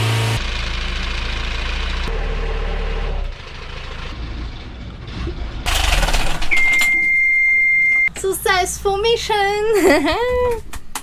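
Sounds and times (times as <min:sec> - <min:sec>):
diesel engine idling: 0:00.0 - 0:06.0.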